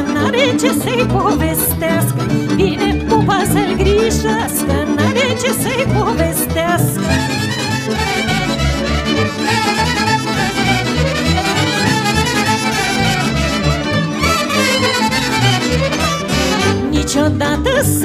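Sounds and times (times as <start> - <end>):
folk band playing: 0.0 - 17.4
pulsing bass beat: 9.5 - 16.8.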